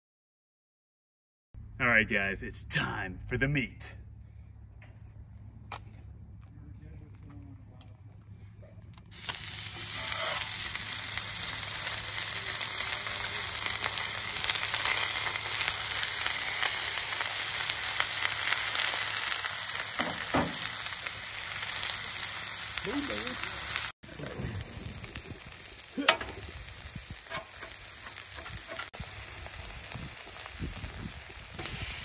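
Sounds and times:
steaks sizzling on a griddle: 0:09.1 - 0:32.0.

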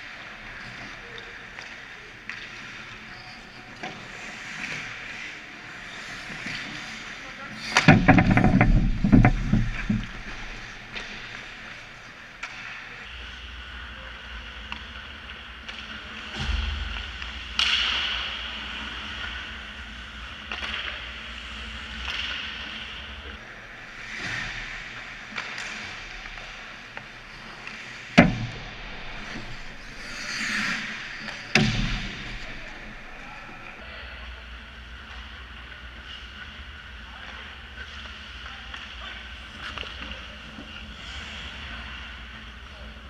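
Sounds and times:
skates scraping ice: 0:00.1 - 0:13.7, 0:20.2 - 0:33.8
hockey sticks and puck knocking: 0:07.7 - 0:11.7, 0:27.4 - 0:33.7.

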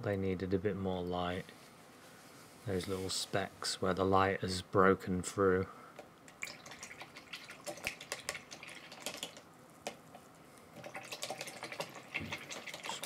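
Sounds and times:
faint water splashing: 0:06.4 - 0:09.4, 0:10.7 - 0:13.0.

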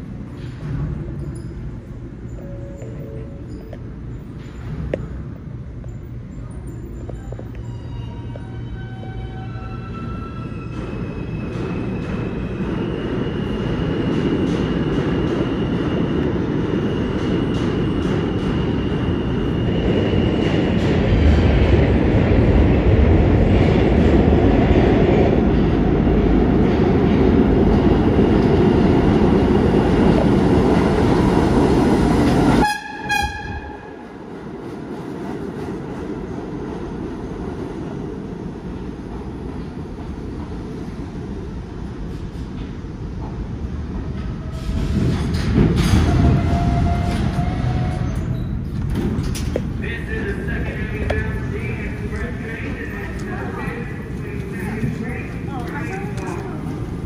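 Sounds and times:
high train whine: 0:00.0 - 0:57.0
subway train rumbling: 0:00.0 - 0:57.0.

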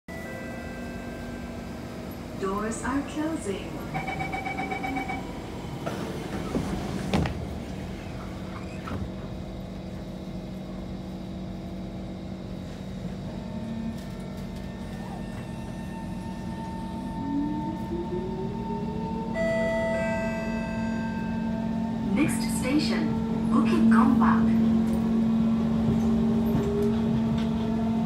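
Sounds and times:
train car humming: 0:00.1 - 0:28.0
door warning chime: 0:03.9 - 0:05.3, 0:19.4 - 0:21.6
train doors sliding shut: 0:05.2 - 0:10.1, 0:24.6 - 0:28.0.

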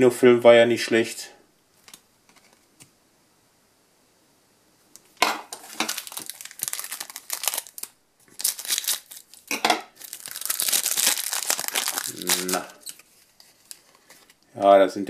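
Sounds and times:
foil pack crinkling: 0:05.5 - 0:14.5.

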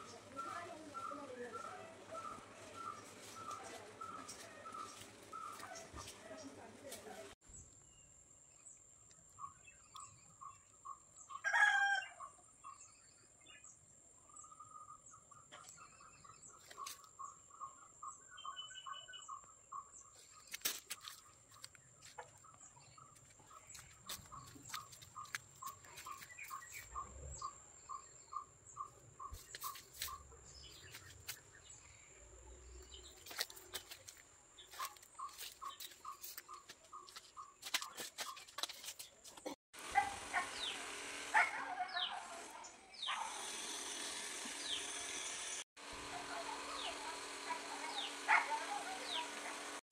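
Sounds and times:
chicken crowing: 0:11.4 - 0:12.2.

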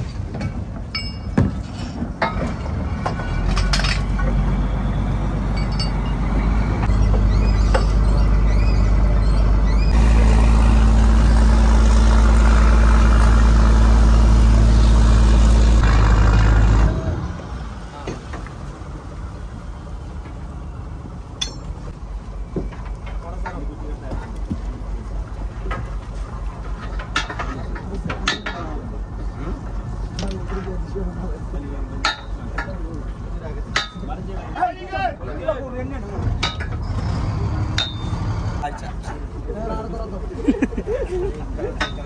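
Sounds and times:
sharp knocks and clinks: 0:00.3 - 0:04.4, 0:05.5 - 0:08.3, 0:21.4 - 0:22.0, 0:26.7 - 0:28.8, 0:32.0 - 0:32.8, 0:33.7 - 0:34.2, 0:36.4 - 0:37.0, 0:37.7 - 0:38.2
boat engine humming: 0:02.0 - 0:42.0.

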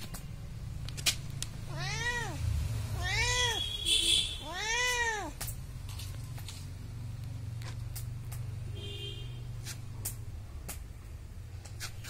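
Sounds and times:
cat meowing: 0:01.6 - 0:05.4.

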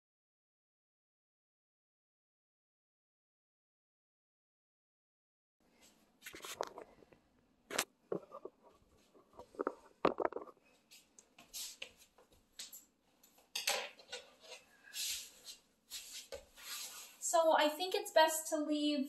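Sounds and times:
small objects clicking and rustling: 0:09.2 - 0:10.6.

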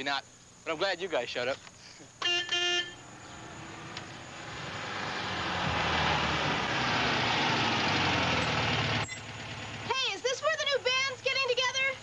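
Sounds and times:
road noise: 0:01.6 - 0:12.0
car engine: 0:03.0 - 0:09.9.

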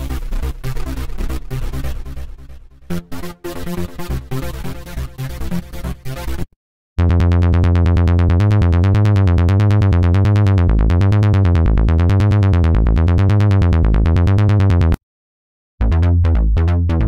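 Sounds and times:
sawtooth acid bass synthesizer: 0:00.0 - 0:06.4, 0:07.0 - 0:15.0, 0:15.8 - 0:17.0.

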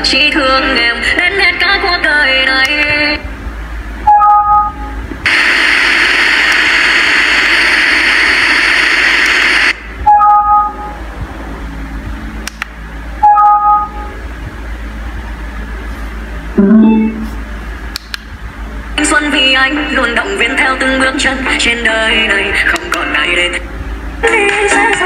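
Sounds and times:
loud static hiss: 0:00.0 - 0:04.1, 0:04.8 - 0:10.1, 0:14.0 - 0:25.0
rising two-note beeps: 0:16.6 - 0:17.4.

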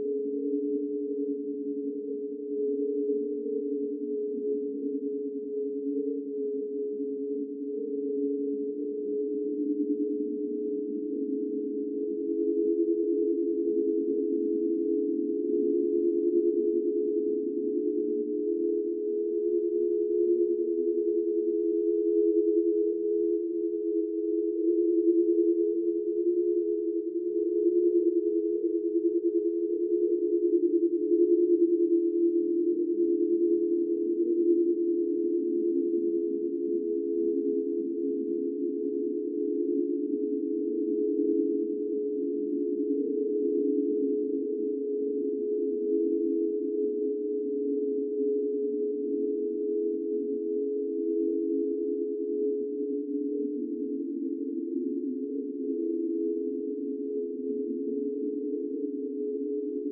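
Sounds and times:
ghostly drone of close tones: 0:50.2 - 0:59.9.

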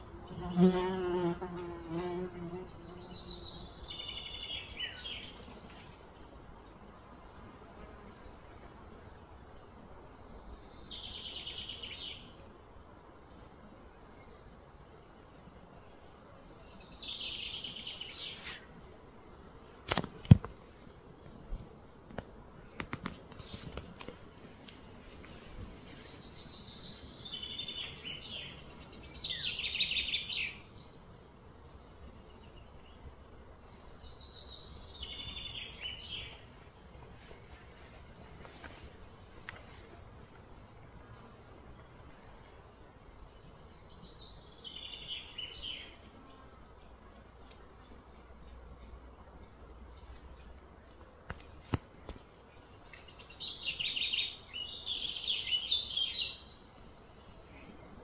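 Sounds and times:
low outdoor background noise: 0:00.0 - 0:58.0
bird chirping: 0:22.8 - 0:36.6, 0:39.5 - 0:47.0, 0:47.7 - 0:58.0.

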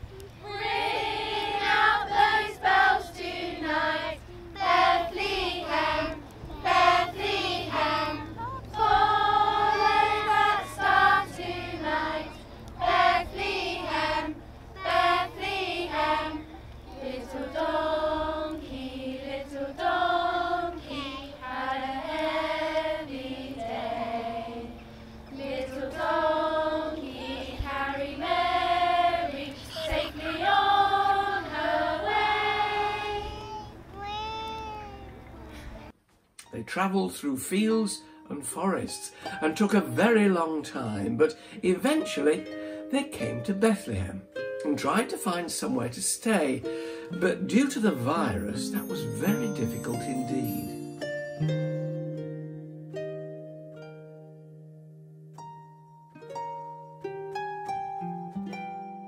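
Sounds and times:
children and adults singing: 0:00.4 - 0:33.6.

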